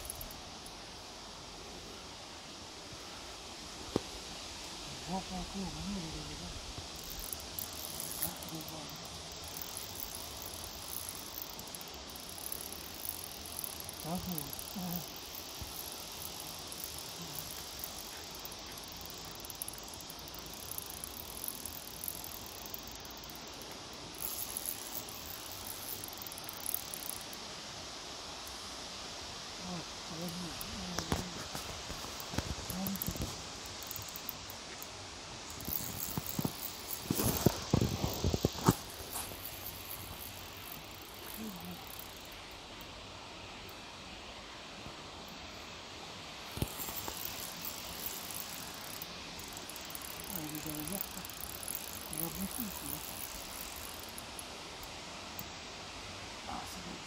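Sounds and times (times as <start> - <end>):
fishing reel whirring: 0.0 - 0.7, 6.9 - 27.4, 32.1 - 34.6, 35.5 - 42.3, 46.5 - 54.5
riverside ambient hiss: 0.0 - 57.0.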